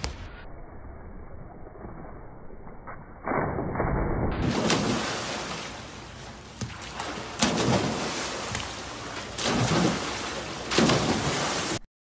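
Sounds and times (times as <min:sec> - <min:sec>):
splashes of people diving: 0:03.4 - 0:11.8.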